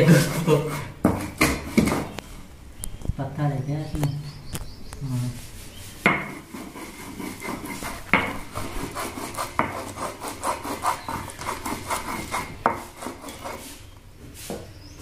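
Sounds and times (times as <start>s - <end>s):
stone grinding scraping strokes: 0.0s - 2.1s, 6.0s - 13.8s.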